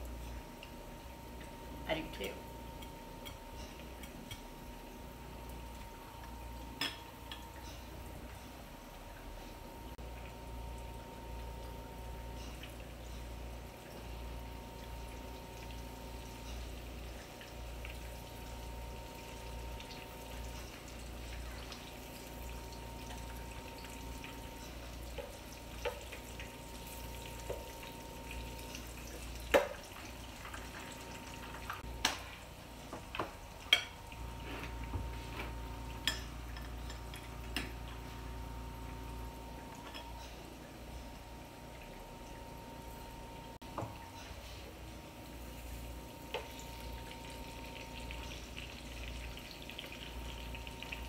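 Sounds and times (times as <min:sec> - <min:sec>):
food sizzling in oil: 0:11.9 - 0:42.1, 0:45.1 - 0:51.0.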